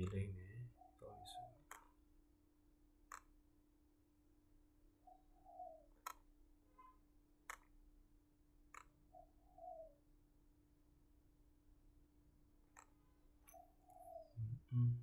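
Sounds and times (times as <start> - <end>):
faint cooing call: 0.0 - 1.6, 13.9 - 15.0
computer mouse clicks: 1.6 - 2.0, 3.1 - 3.4, 6.0 - 6.3, 7.4 - 7.8, 8.7 - 9.0, 12.7 - 14.2
steady low hum: 14.4 - 15.0.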